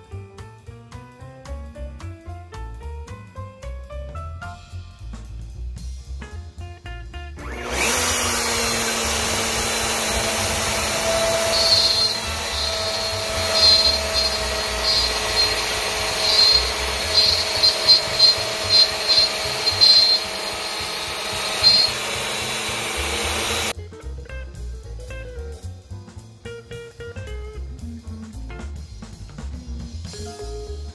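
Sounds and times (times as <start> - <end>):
router spindle whining and cutting wood: 7.4 - 23.8.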